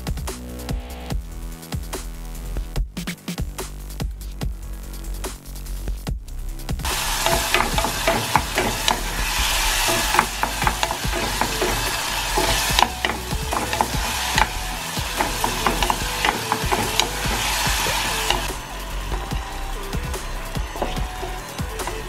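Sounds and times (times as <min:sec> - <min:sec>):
wooden spoon scraping a pan: 0:06.9 - 0:18.6
vegetables sizzling in a saucepan: 0:06.9 - 0:22.0.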